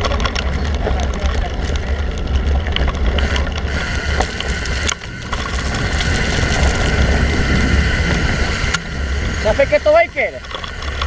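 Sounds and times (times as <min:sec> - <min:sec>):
bike trail rumble: 0:00.0 - 0:11.0
freehub ratcheting buzz: 0:02.7 - 0:11.0
wind rushing: 0:03.7 - 0:11.0.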